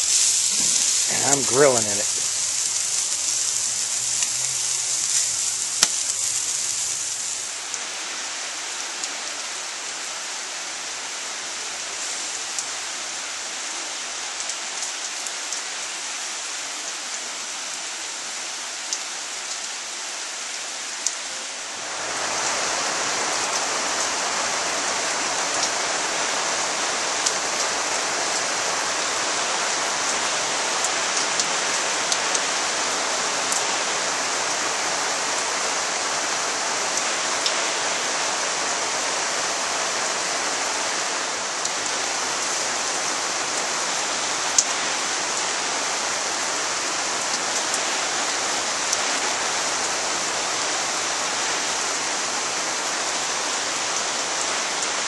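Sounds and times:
chicken sizzling on grill: 0:00.0 - 0:07.8, 0:11.6 - 0:12.8
sharp drips: 0:00.0 - 0:07.8
rain pattering on wooden deck: 0:00.0 - 0:55.0.

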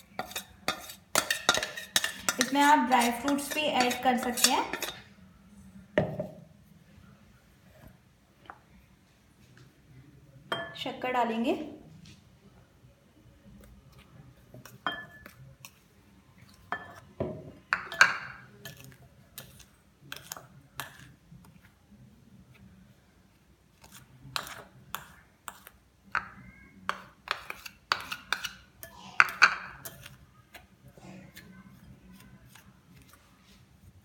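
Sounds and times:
spoon and bowl clinking on glass: 0:00.2 - 0:05.0, 0:14.8 - 0:15.4.

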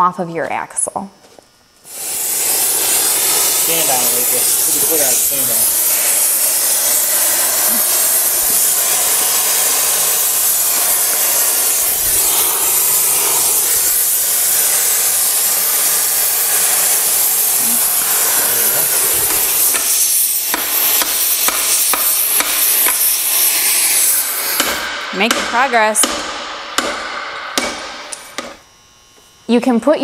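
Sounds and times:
cutting torch flame hissing: 0:01.7 - 0:29.2
sharp metal knocks: 0:24.6 - 0:28.6.

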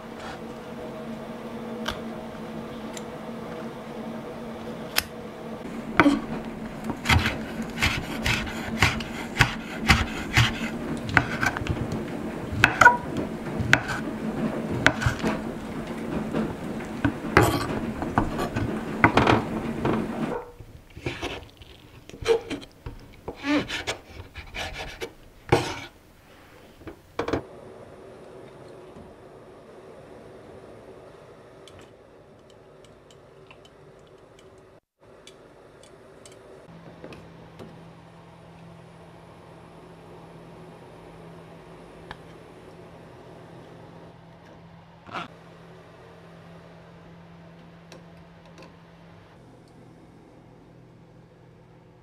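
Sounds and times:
steady low hum: 0:00.0 - 0:52.0
knife chopping on wooden board: 0:06.9 - 0:11.8, 0:12.5 - 0:13.0, 0:13.6 - 0:14.0, 0:14.8 - 0:15.3.

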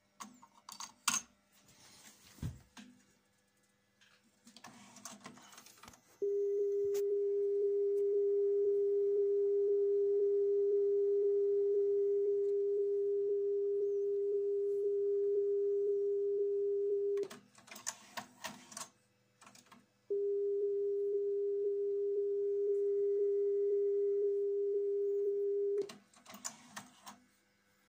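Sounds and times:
cassette mechanism clicks and clatter: 0:17.2 - 0:19.8.

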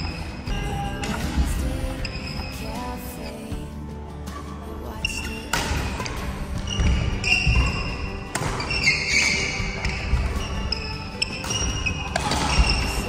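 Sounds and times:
background music: 0:00.0 - 0:13.0
shoe squeaks on court: 0:05.1 - 0:13.0
racket hitting shuttlecock: 0:05.5 - 0:13.0.

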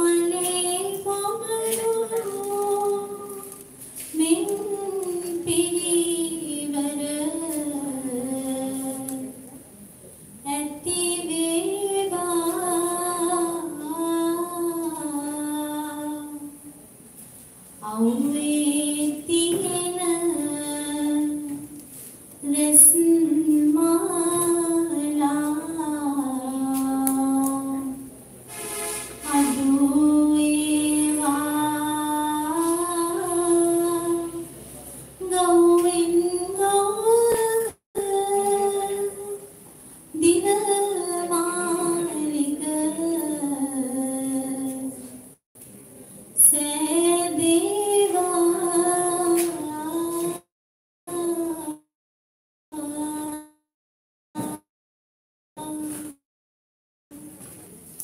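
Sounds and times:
person singing unaccompanied: 0:00.0 - 0:09.5, 0:40.2 - 0:45.1.

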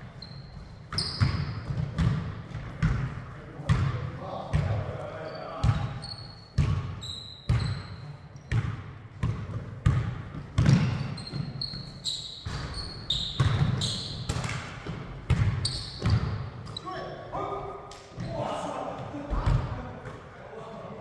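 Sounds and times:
shoes squeaking on floor: 0:00.0 - 0:01.8, 0:05.1 - 0:08.5, 0:10.7 - 0:14.4, 0:15.6 - 0:17.2
basketball bouncing on hardwood floor: 0:00.9 - 0:03.1, 0:06.6 - 0:06.9, 0:08.5 - 0:11.4, 0:13.4 - 0:16.4.

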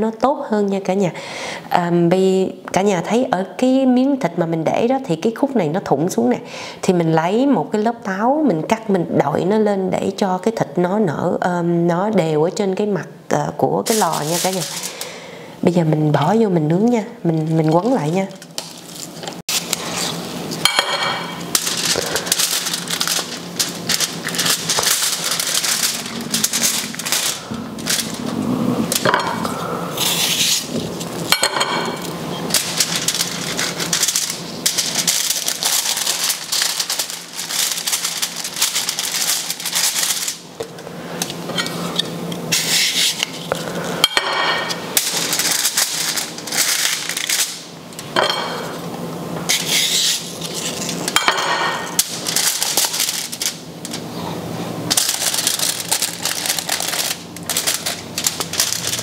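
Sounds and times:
aluminium foil crinkling: 0:13.8 - 0:15.2, 0:16.8 - 0:29.2, 0:30.0 - 0:40.6, 0:44.6 - 0:48.2, 0:49.5 - 0:54.1, 0:54.8 - 0:59.0.

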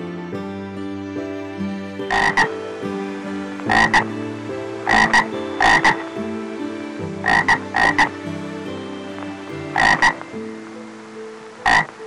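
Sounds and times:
frog croaking: 0:02.0 - 0:06.4, 0:07.1 - 0:08.2, 0:09.1 - 0:12.0.

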